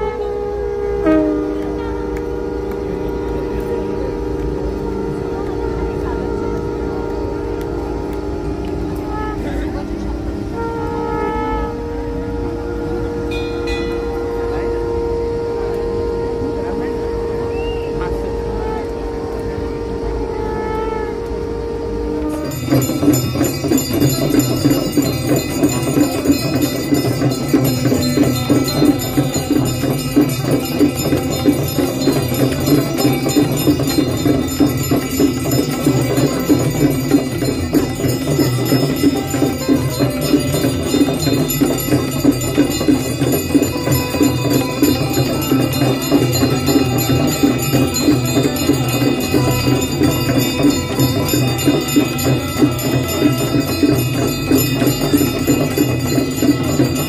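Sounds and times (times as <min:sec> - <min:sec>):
brass hand bells ringing: 0:00.0 - 0:57.0
steady drumbeat: 0:22.3 - 0:57.0.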